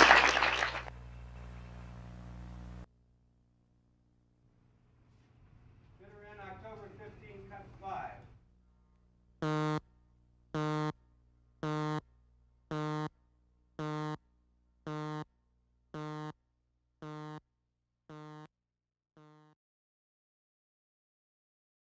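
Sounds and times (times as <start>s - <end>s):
buzzy electronic countdown beeps: 9.4s - 9.8s, 10.5s - 11.0s, 11.6s - 12.0s, 12.7s - 13.1s, 13.8s - 14.2s, 14.9s - 15.3s, 16.0s - 16.4s, 17.0s - 17.4s, 18.1s - 18.5s.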